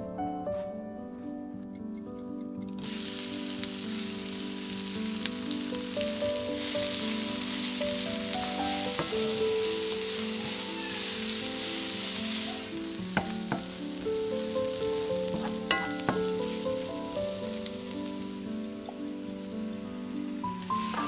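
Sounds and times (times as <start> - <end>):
soft background music: 0.0 - 21.0
onions sizzling in oil: 2.7 - 21.0
spatula tapping pan: 8.4 - 9.5, 13.0 - 16.9.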